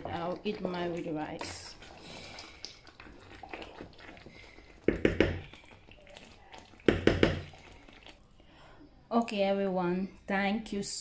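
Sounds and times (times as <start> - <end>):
wooden spatula knocking on a pan: 4.9 - 5.4, 6.9 - 7.5.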